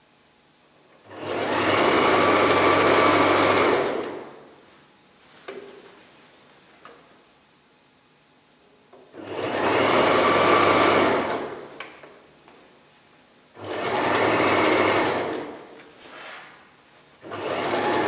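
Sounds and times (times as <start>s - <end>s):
sewing machine stitching: 1.0s - 4.4s, 9.2s - 11.6s, 13.6s - 15.7s, 17.2s - 18.0s.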